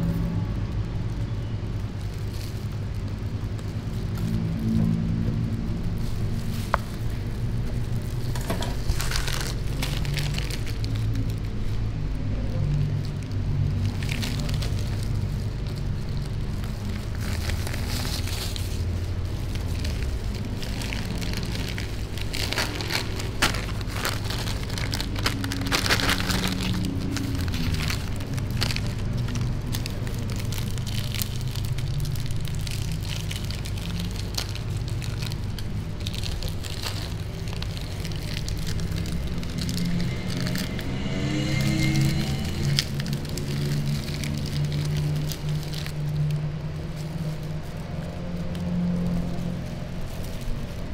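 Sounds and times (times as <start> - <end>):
plastic packaging crinkling: 0.0 - 50.9.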